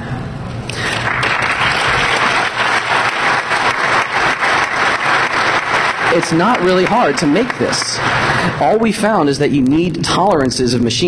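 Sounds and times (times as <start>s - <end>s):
audience applauding: 0.7s - 9.4s.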